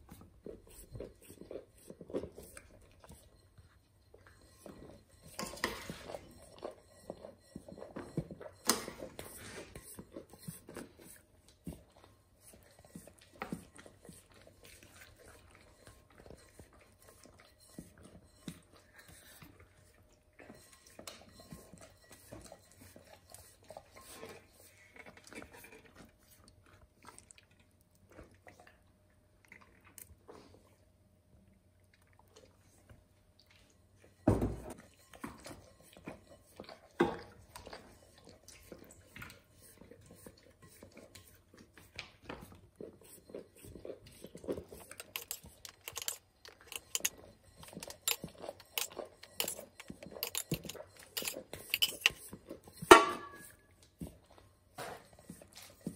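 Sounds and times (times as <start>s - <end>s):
spoon scraping a tin: 0.1s - 11.8s, 12.4s - 26.1s, 34.7s - 53.8s
ladle scraping a pot: 4.3s - 11.2s, 12.5s - 19.9s, 20.5s - 25.9s, 34.7s - 53.8s.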